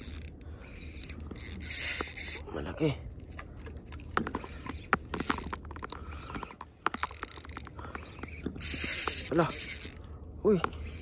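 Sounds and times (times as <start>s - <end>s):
fishing reel clicking: 0.0s - 2.4s, 5.1s - 10.0s.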